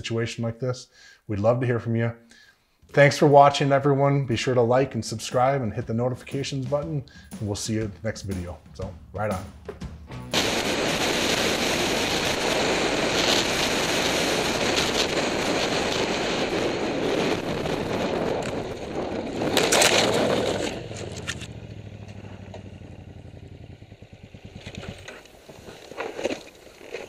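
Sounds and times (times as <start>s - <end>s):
wind noise: 10.4s - 21.5s
motorcycle sliding on gravel: 10.4s - 27.0s
motorcycle engine: 18.4s - 26.3s.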